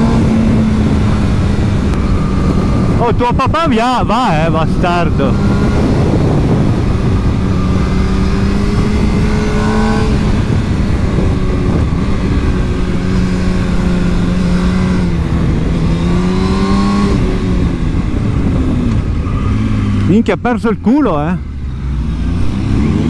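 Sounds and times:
motorcycle engine running: 0.0s - 23.0s
wind and road noise: 0.0s - 23.0s.

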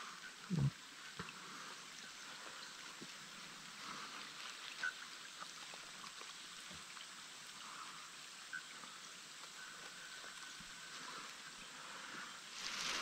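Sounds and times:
light rain on water: 0.0s - 13.0s.

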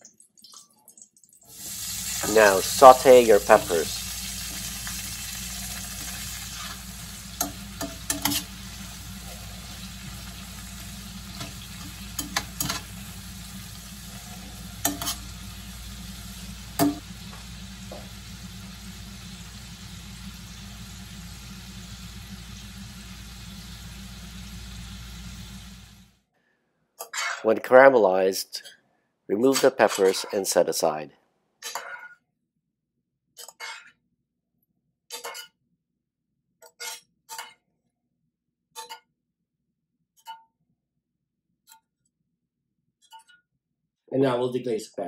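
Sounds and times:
peppers sizzling in oil: 1.5s - 26.1s
metal tongs clicking on pan: 7.4s - 8.5s, 11.4s - 12.8s, 14.8s - 15.3s.

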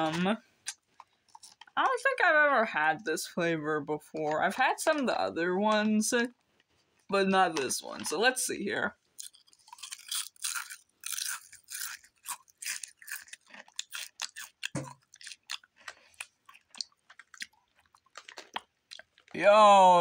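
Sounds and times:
person crunching potato chips: 0.0s - 2.1s, 9.1s - 19.4s.

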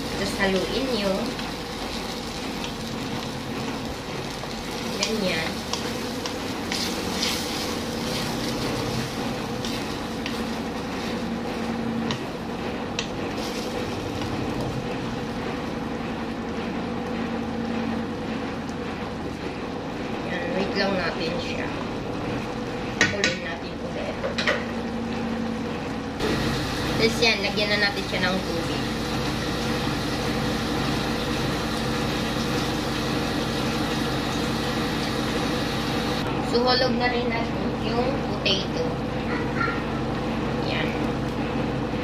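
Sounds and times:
wooden spoon stirring in a wok: 0.0s - 23.1s
steady humming drone: 0.0s - 42.0s.

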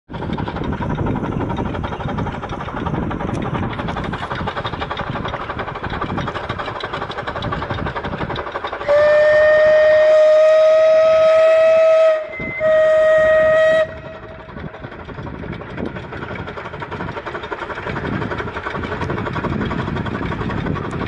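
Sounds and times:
steam locomotive chuffing: 0.1s - 21.0s
steam whistle: 8.8s - 14.1s.

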